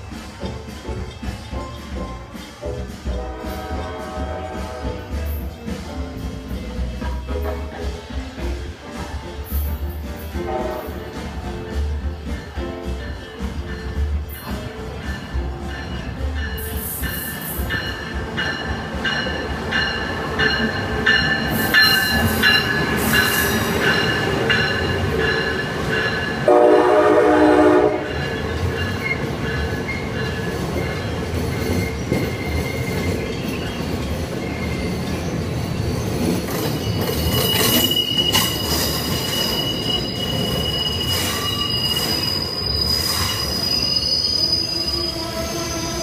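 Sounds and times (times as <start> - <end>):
train wheels rumbling on rails: 0.0 - 46.0
train horn: 3.2 - 5.1, 10.4 - 11.0, 26.4 - 28.3
high wheel squeal: 28.1 - 46.0.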